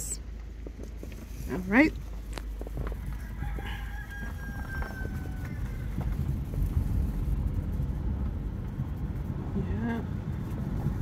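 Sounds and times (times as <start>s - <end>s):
low rumble of car: 0.0s - 11.0s
rooster crowing: 2.8s - 6.4s.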